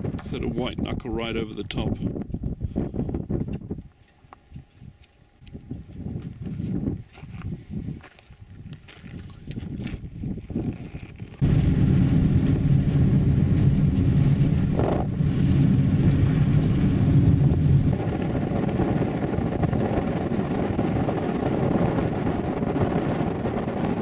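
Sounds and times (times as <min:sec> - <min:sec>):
wind and tyre noise on dirt: 0:00.0 - 0:24.0
road noise: 0:11.4 - 0:22.3
car engine hum: 0:11.4 - 0:23.8.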